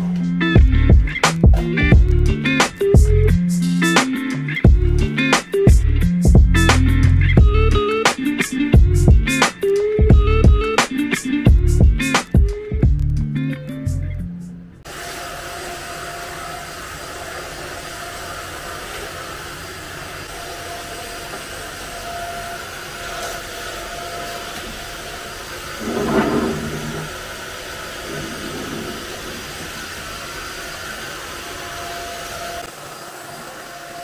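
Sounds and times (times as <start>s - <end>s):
vacuum cleaner running: 14.8s - 34.0s.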